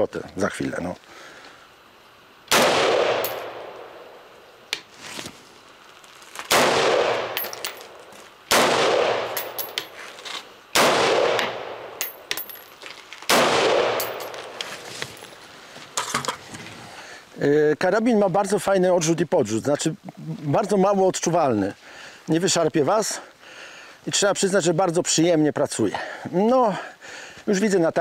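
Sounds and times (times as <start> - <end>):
rifle shots: 2.5 - 3.9, 6.5 - 7.8, 8.5 - 9.8, 10.7 - 12.5, 13.3 - 14.3
brass casings clinking: 3.2 - 3.6, 7.3 - 8.1, 9.2 - 10.0, 12.0 - 12.8, 13.9 - 15.4.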